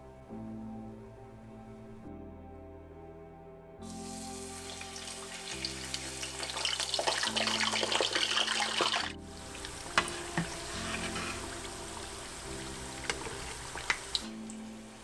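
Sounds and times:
background music chords: 0.0s - 15.0s
food sizzling in deep oil: 3.9s - 15.0s.

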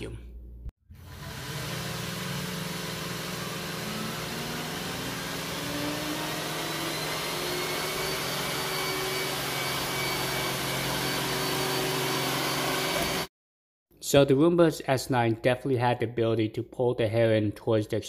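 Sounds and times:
rising motor whine: 1.0s - 13.3s
robot vacuum whirring: 1.0s - 13.3s.

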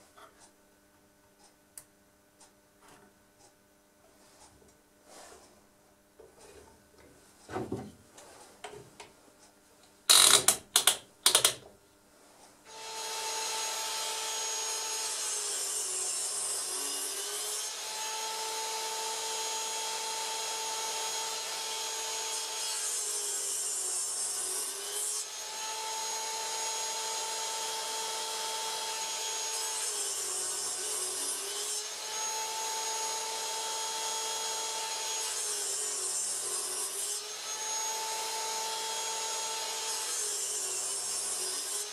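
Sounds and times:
miter saw cutting plywood: 12.7s - 41.9s.

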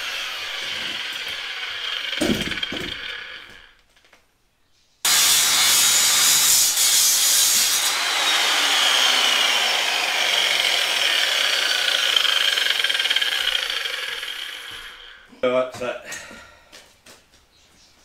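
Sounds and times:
angle grinder cutting steel: 0.0s - 3.7s, 5.1s - 15.3s.

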